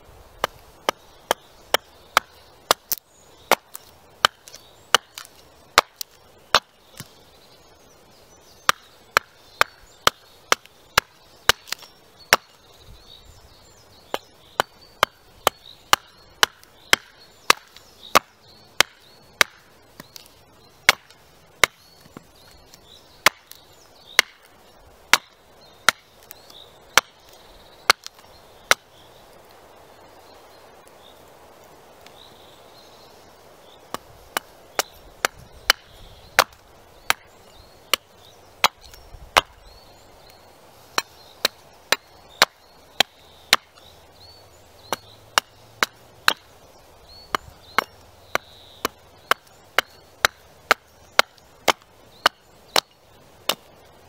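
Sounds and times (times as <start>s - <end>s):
axe chopping wood: 0.4s - 7.2s, 8.6s - 12.6s, 14.1s - 22.2s, 23.2s - 24.5s, 25.1s - 26.3s, 26.9s - 27.2s, 27.9s - 28.9s, 33.9s - 37.3s, 37.9s - 39.6s, 40.9s - 43.9s, 44.8s - 46.5s, 47.2s - 53.7s.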